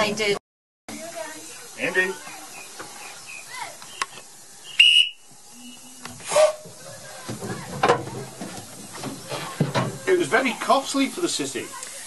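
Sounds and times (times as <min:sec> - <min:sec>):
steam hiss: 0:00.9 - 0:07.4, 0:08.6 - 0:12.0
steam locomotive whistle blast: 0:04.8 - 0:06.6.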